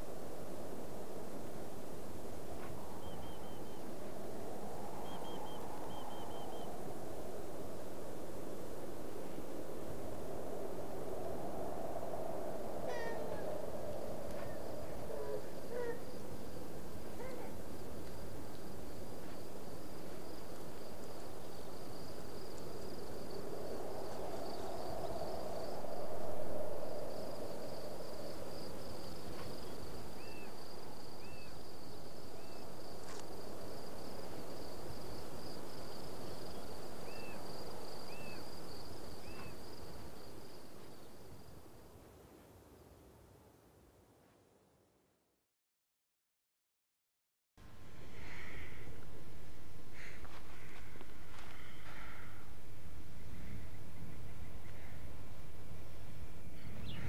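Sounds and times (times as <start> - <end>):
insects trilling: 2.6 - 7.1, 12.6 - 41.7
low hoot-like tone: 12.8 - 16.4, 17.1 - 17.6.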